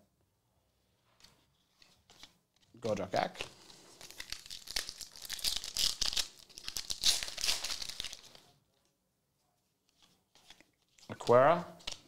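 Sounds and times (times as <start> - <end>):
foil wrapper crinkling and tearing: 4.0 - 8.4.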